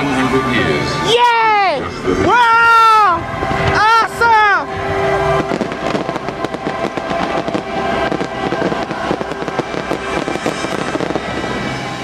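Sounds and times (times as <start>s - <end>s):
sustained musical chord: 0.0s - 12.0s
fireworks crackling and popping: 4.8s - 12.0s.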